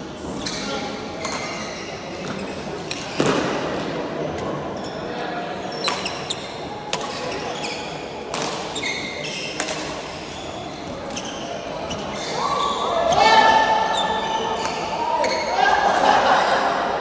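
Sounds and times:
shuttlecock hit with rackets: 0:02.9 - 0:03.6.

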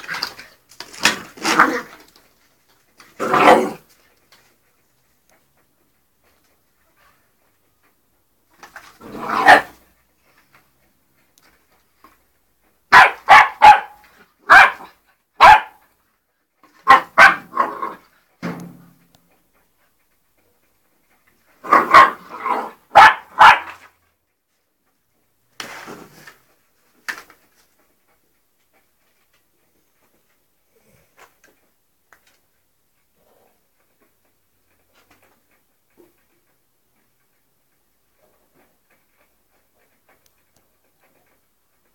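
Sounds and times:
puppy barking: 0:03.2 - 0:03.8, 0:09.0 - 0:09.8, 0:12.9 - 0:15.8, 0:16.7 - 0:18.0, 0:21.6 - 0:24.0.

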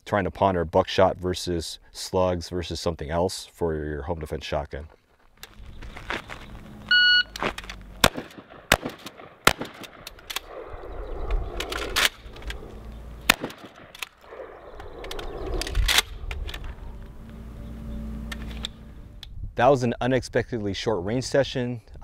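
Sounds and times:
shot timer beep: 0:06.9 - 0:07.4
shells being loaded: 0:07.3 - 0:10.6, 0:11.5 - 0:16.8
shotgun shots: 0:08.0 - 0:10.8, 0:11.6 - 0:14.6.

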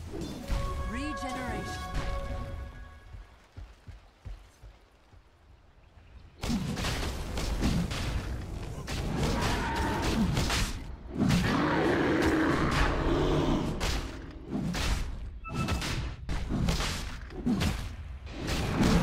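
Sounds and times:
game music: 0:00.0 - 0:03.3.

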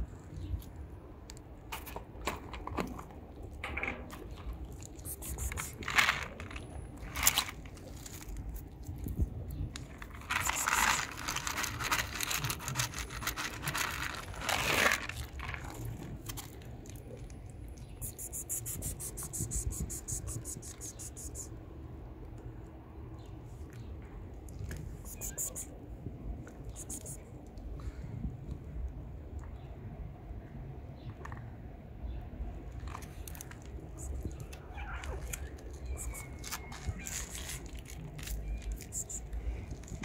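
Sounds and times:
cat chewing and smacking: 0:15.1 - 0:21.1.

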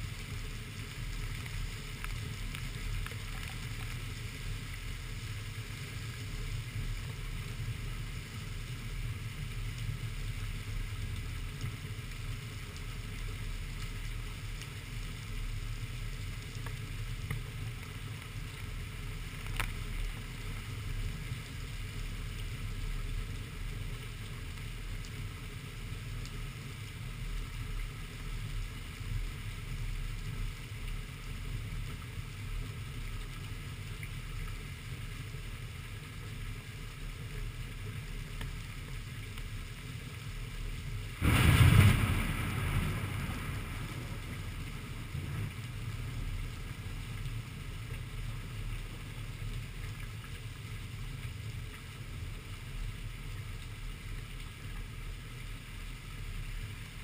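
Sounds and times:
rain: 0:00.0 - 0:57.0
low wind rumble: 0:40.8 - 0:49.0
thunderclap and rumble: 0:41.2 - 0:46.5.

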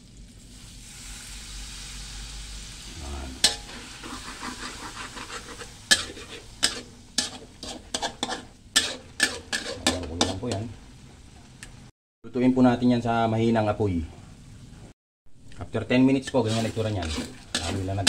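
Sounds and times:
food sizzling in a wok: 0:00.0 - 0:11.9, 0:16.0 - 0:18.0
spatula scraping a wok: 0:03.4 - 0:11.1, 0:16.2 - 0:18.0.

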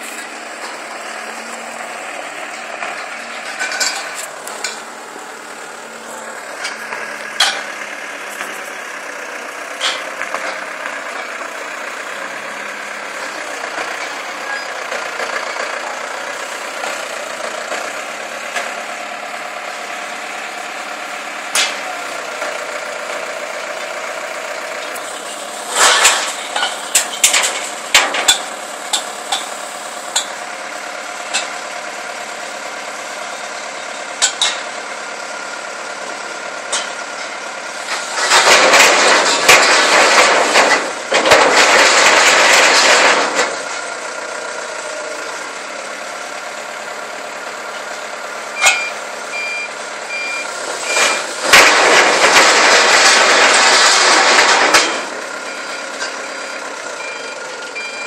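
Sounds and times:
forklift engine running: 0:00.0 - 0:58.0
steel pipes clanking together: 0:02.4 - 0:04.9, 0:06.0 - 0:08.7, 0:09.7 - 0:11.4, 0:24.6 - 0:30.4, 0:34.2 - 0:34.7, 0:36.7 - 0:43.8, 0:48.6 - 0:49.0, 0:50.8 - 0:56.2.

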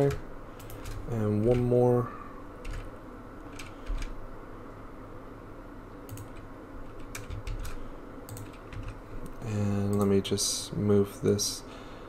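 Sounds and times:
low background noise: 0:00.0 - 0:12.0
keyboard key presses: 0:06.1 - 0:09.0.

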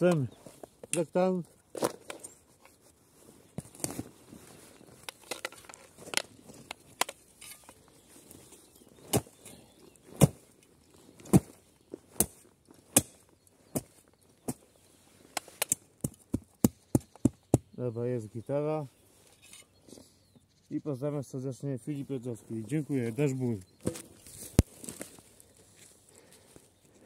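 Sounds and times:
shovel chopping into soil: 0:09.0 - 0:10.4, 0:11.2 - 0:13.9.

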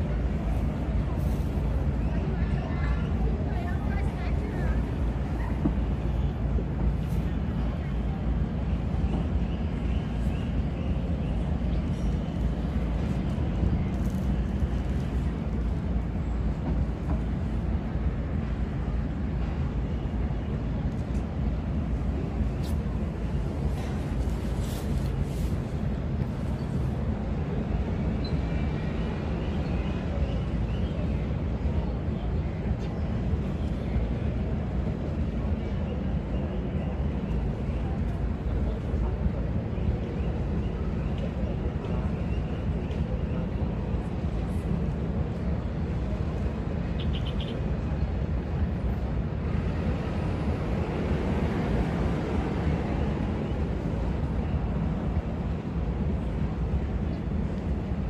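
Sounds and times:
low harbour rumble: 0:00.0 - 0:58.0
wind: 0:00.0 - 0:58.0.

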